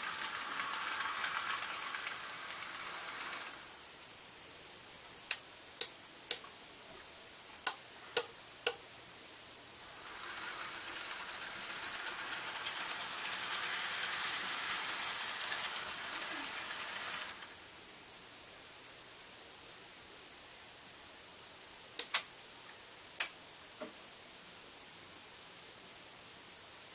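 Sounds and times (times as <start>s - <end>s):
model train rattling on track: 0.0s - 3.8s, 9.9s - 17.6s
electrical switching clicks: 22.0s - 22.3s.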